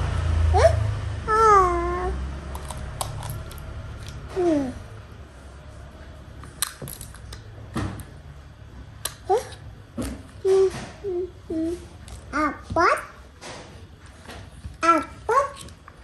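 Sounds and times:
plastic toy pieces clicking: 2.5 - 4.2.

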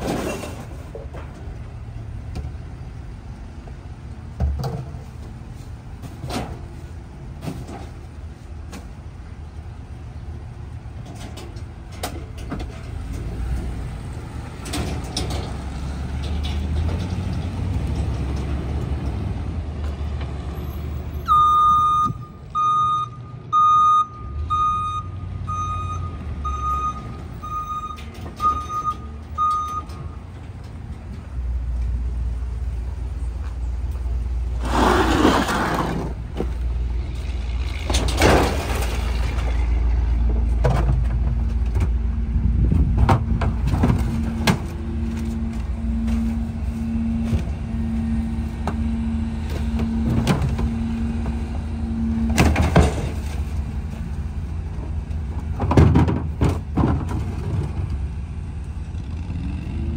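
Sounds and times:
reversing alarm beeping: 21.2 - 30.2, 44.9 - 52.4
garbage truck engine running: 34.1 - 59.9.

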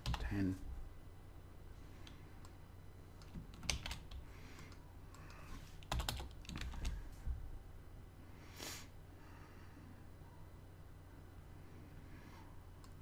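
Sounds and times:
steady low hum: 0.0 - 13.0
keyboard keys clicking: 3.2 - 7.0.

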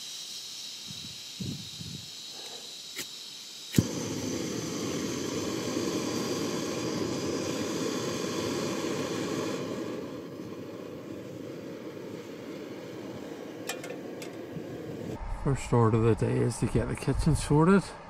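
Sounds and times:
gas hissing: 0.0 - 15.7
gas burner roaring: 0.0 - 18.0
gas igniting pop: 3.7 - 11.0.

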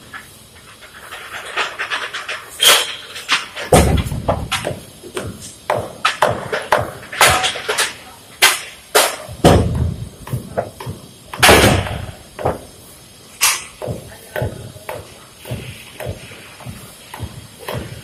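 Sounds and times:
metal knocks and clanks: 0.1 - 12.7
heavy thuds: 3.6 - 7.5, 9.0 - 12.8, 13.4 - 18.0.

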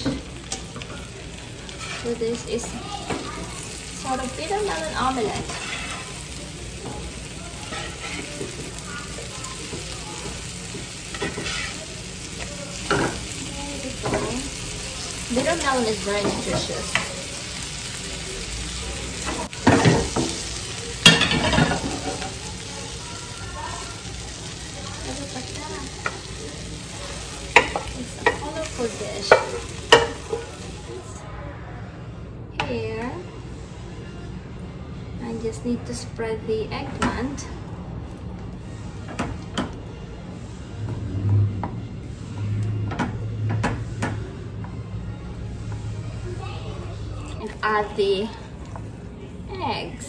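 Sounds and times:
food sizzling in a pan: 0.0 - 31.2
metal spatula scraping a pan: 1.7 - 2.3, 5.2 - 6.2, 7.6 - 8.6, 11.1 - 11.9.

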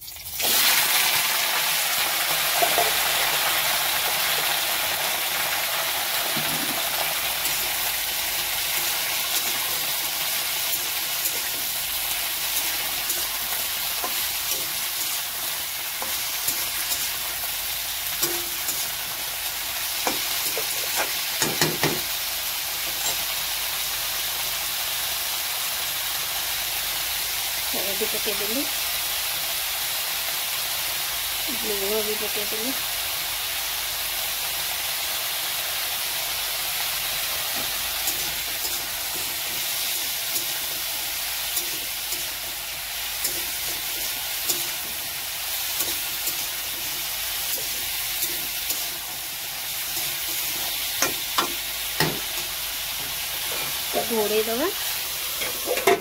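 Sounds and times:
vegetables sizzling in hot oil: 0.0 - 56.0
metal spatula scraping pan: 22.9 - 23.3, 55.3 - 56.0.

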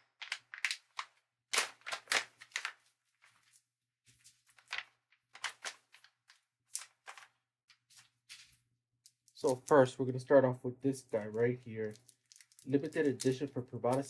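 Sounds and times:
packaging rustling and scraping: 11.1 - 14.0.

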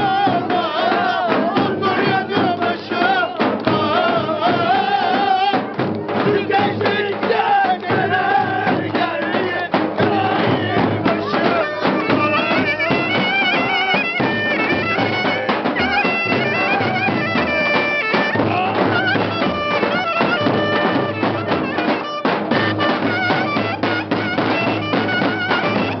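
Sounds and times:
steady drum beat: 0.0 - 26.0
shrill reed wind instrument melody: 10.0 - 26.0.

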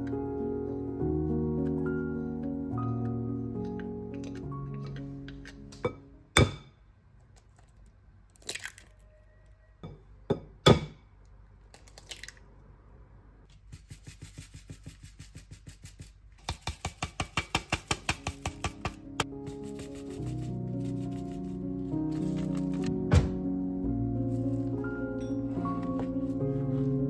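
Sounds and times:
eggs cracking on glass bowl: 7.6 - 9.0, 11.7 - 12.4.

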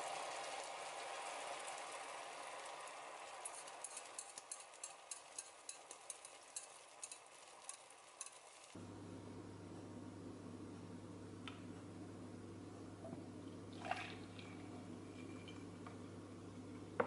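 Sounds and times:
oil crackling in a pan: 0.0 - 8.8
steady low hum: 8.8 - 17.0.

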